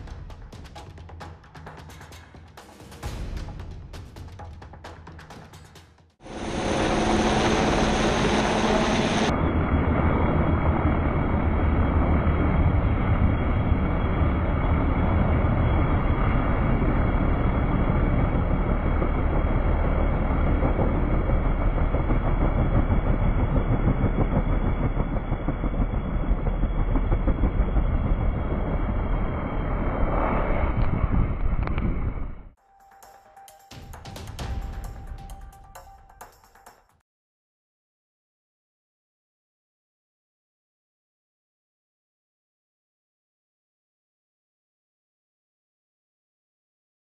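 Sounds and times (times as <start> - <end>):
helicopter rotor and engine rumble: 6.2 - 30.0
wind and sand on microphone: 8.9 - 32.5.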